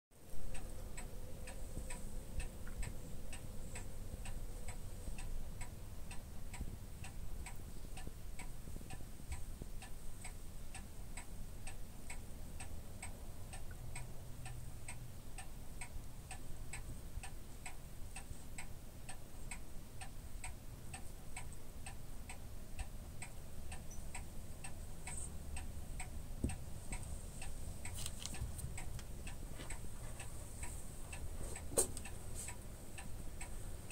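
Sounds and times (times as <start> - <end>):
steady ticking: 0.2 - 33.9
brief rustle: 27.8 - 28.8.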